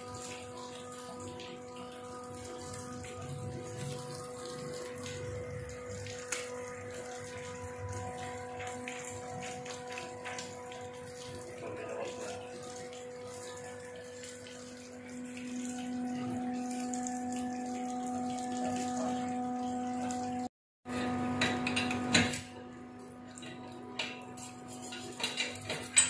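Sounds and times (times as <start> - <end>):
machinery electric hum: 0.0 - 25.0.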